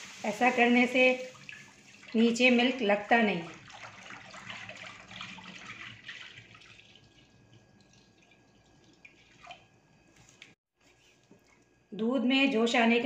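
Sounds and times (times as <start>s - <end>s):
milk pouring and splashing into pan: 3.5s - 11.7s.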